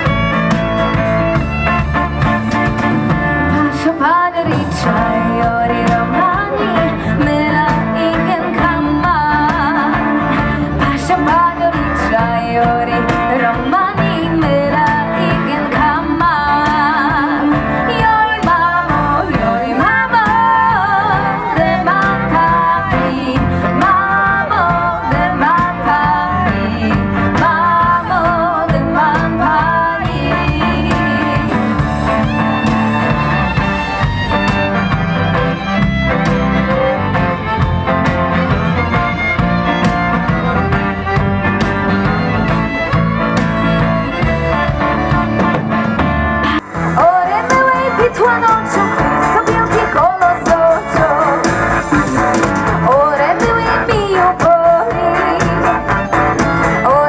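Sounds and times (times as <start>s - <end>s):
bass beat: 0.0s - 57.0s
fiddle: 0.0s - 57.0s
guitar: 0.0s - 57.0s
person singing: 3.4s - 33.0s, 46.4s - 57.0s.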